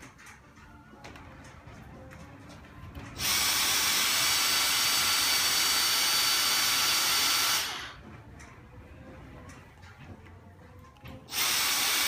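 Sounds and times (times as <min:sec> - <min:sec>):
stick vacuum motor whine: 0:03.1 - 0:08.0, 0:11.3 - 0:12.0.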